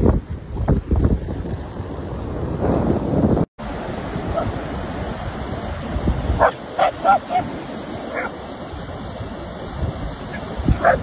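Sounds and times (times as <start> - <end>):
wind and surf hiss: 0.0 - 11.0
dog barking in short yips: 10.8 - 11.0.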